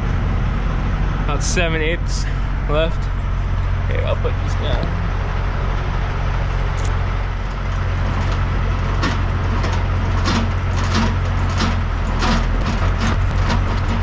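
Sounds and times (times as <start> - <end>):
diesel truck idling: 0.0 - 14.0
crank clicking and squeaking: 6.4 - 14.0.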